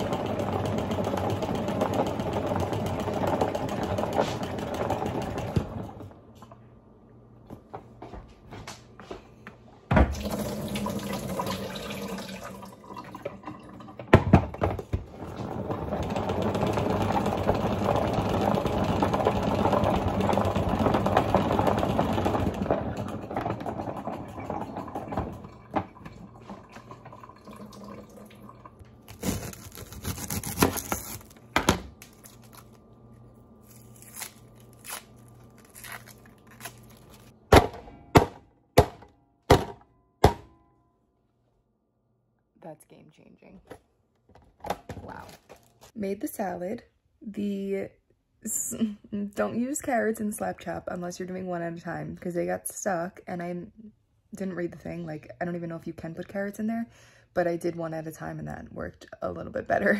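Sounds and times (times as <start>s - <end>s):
knocks on kitchen counter: 9.9s - 10.2s, 14.1s - 15.1s, 37.5s - 40.6s
knife chopping thunks: 37.5s - 40.5s.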